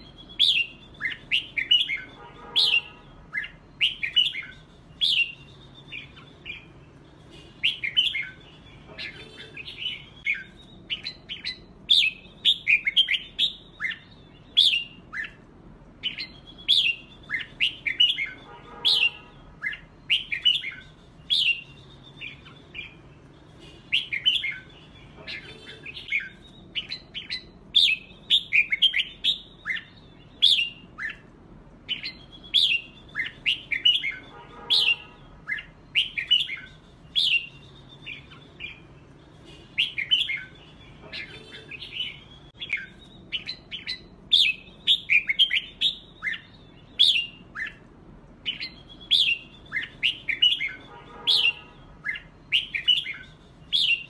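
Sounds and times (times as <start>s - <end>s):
birds singing whistled phrases: 0.0s - 54.0s
harsh bird call: 31.9s - 47.9s, 48.5s - 54.0s.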